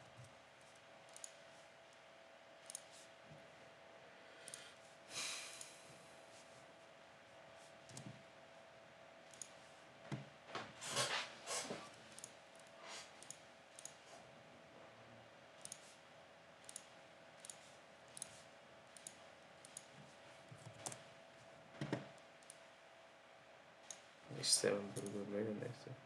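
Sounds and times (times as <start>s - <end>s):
faint steady hum: 0.0s - 26.0s
computer mouse clicks: 0.2s - 1.4s, 2.6s - 3.1s, 4.4s - 4.7s, 7.8s - 8.2s, 9.3s - 9.6s, 12.1s - 14.0s, 15.6s - 16.0s, 16.6s - 20.0s, 20.6s - 21.0s, 21.8s - 22.7s, 23.8s - 24.1s.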